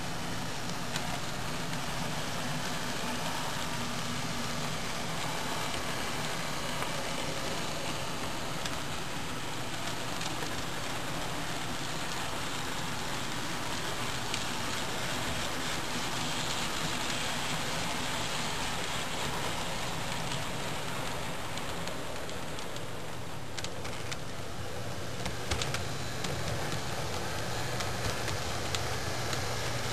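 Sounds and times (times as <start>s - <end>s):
model train cars rolling: 0.0s - 29.9s.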